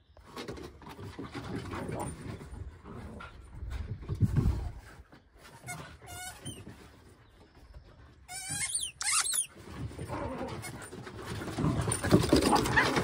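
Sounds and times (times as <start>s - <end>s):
squeaky toy squeaking: 6.1s - 6.6s, 8.3s - 9.5s.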